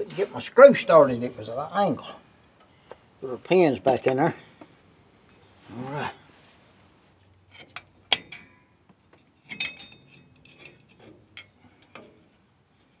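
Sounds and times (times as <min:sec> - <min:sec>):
metal clinks and taps: 0:07.5 - 0:12.0.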